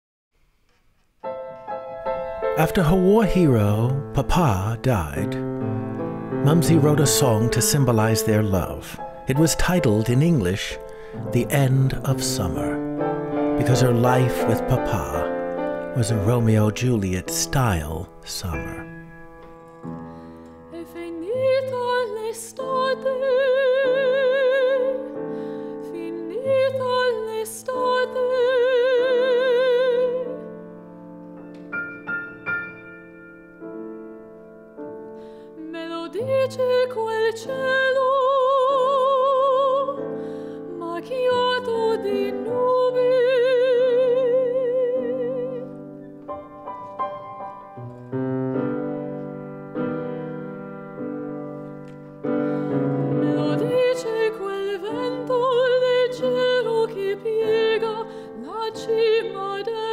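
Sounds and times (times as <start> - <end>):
grand piano: 0.8 - 59.9
woman singing with vibrato: 20.7 - 25.1, 25.8 - 30.4, 35.6 - 45.7, 53.1 - 59.9.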